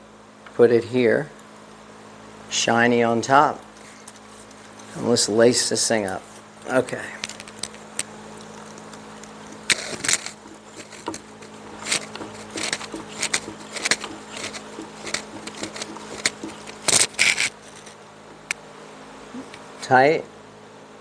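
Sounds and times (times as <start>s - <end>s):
cane swishing through holes: 9.6s - 17.9s.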